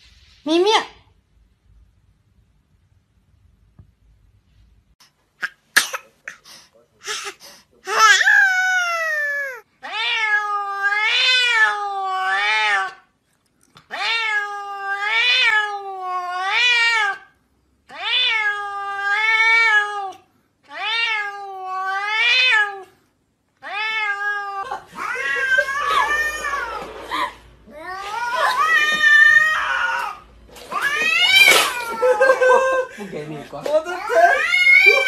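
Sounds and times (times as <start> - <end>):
cat meowing: 7.9 - 13.0, 13.9 - 17.3, 17.9 - 22.9, 23.6 - 26.9, 27.7 - 32.2, 34.0 - 35.0.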